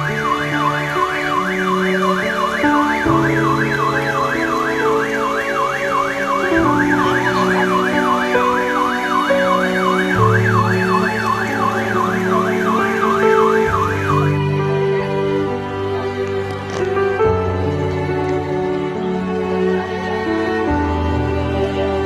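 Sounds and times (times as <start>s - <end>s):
siren wailing rapidly: 0.0s - 14.4s
slow background music: 0.0s - 22.0s.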